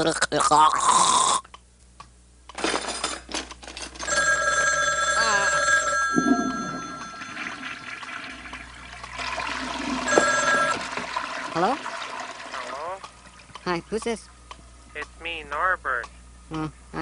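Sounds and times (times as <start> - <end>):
telephone bell ringing: 4.0 - 8.2, 10.0 - 11.0.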